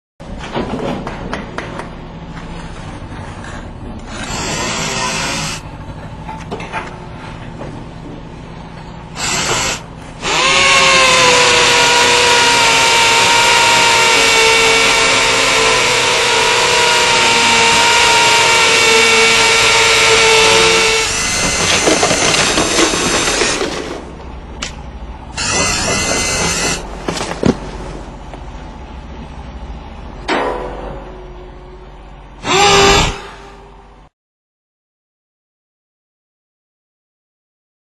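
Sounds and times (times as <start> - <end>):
power drill whining: 4.1 - 5.6, 9.2 - 23.7, 25.4 - 26.9, 32.4 - 33.4.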